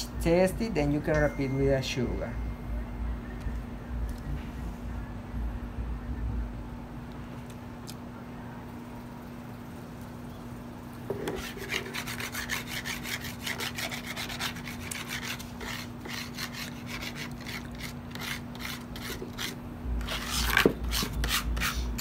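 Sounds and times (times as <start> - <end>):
stone grinding on stone: 11.1 - 21.7.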